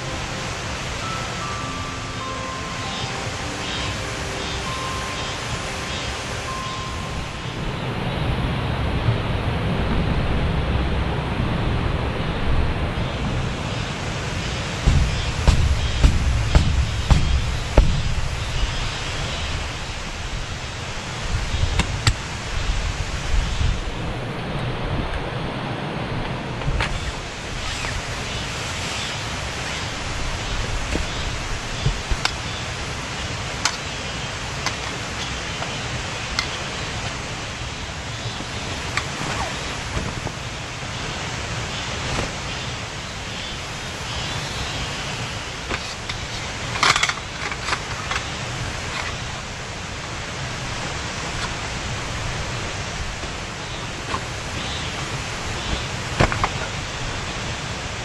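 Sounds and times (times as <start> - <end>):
mountain stream rushing: 0.0 - 58.0
sharp clicks and knocks: 14.8 - 18.4.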